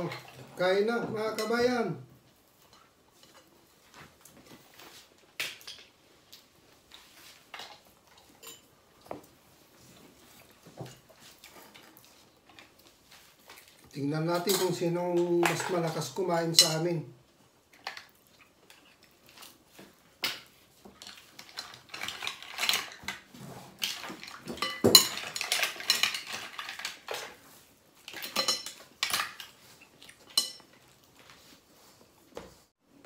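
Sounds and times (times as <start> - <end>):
cutlery and shells clinking on plates: 7.0 - 9.2, 10.7 - 16.9, 17.8 - 31.4.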